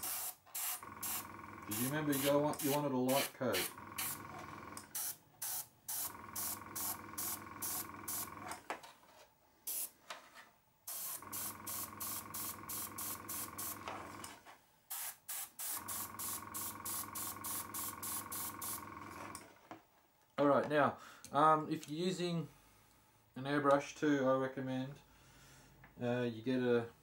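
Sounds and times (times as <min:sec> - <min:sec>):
airbrush spraying hissing puffs: 0:00.0 - 0:04.2, 0:04.9 - 0:08.3, 0:09.7 - 0:10.0, 0:10.9 - 0:14.2, 0:14.9 - 0:18.9
air compressor hum: 0:00.0 - 0:08.7, 0:10.9 - 0:19.4.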